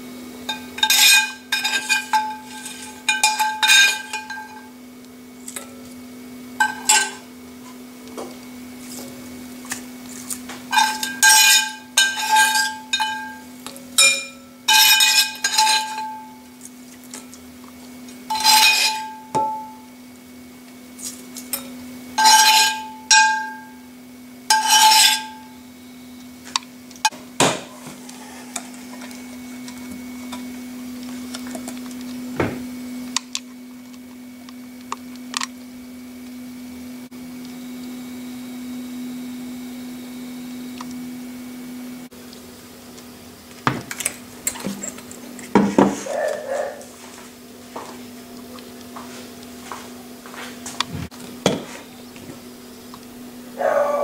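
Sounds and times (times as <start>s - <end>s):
metal spoon clinking on a pan: 0.5s - 4.7s, 6.6s - 7.2s, 10.7s - 16.5s, 18.2s - 19.9s, 21.5s - 23.8s, 24.5s - 25.5s.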